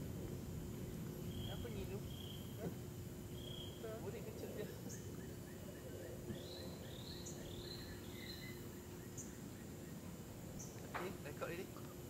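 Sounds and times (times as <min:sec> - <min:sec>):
insects droning: 0:00.0 - 0:12.0
rising whistled calls: 0:01.2 - 0:02.6, 0:03.3 - 0:04.0, 0:04.6 - 0:10.8.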